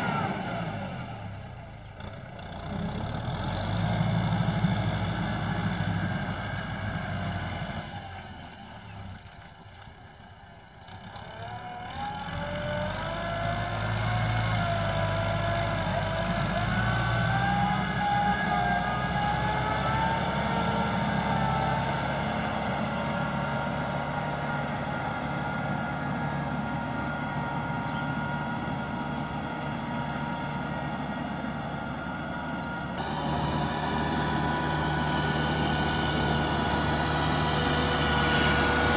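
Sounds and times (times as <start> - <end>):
tractor diesel engine labouring: 0.0 - 38.9.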